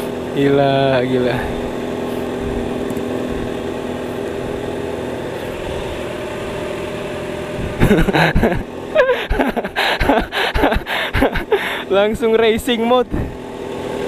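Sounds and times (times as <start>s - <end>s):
motorcycle engines idling: 0.0s - 14.0s
motorcycle revving and accelerating: 0.0s - 14.0s.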